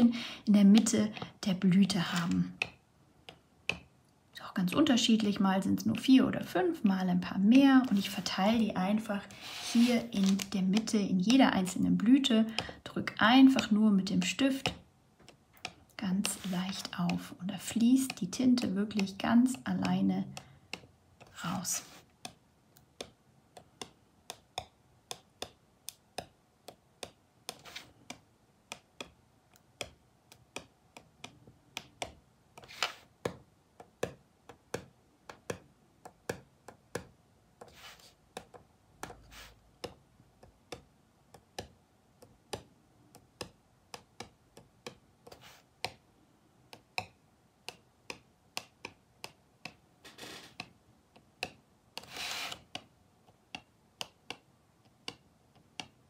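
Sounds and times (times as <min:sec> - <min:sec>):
pen tip tapping on cardboard: 0:02.1 - 0:03.9, 0:13.5 - 0:21.4, 0:22.0 - 0:46.0, 0:46.7 - 0:56.0
hand scuffing on card: 0:09.3 - 0:10.5, 0:27.5 - 0:28.0, 0:32.6 - 0:33.1, 0:37.6 - 0:38.2, 0:39.1 - 0:39.6, 0:45.3 - 0:45.7, 0:50.0 - 0:50.6, 0:52.0 - 0:52.7.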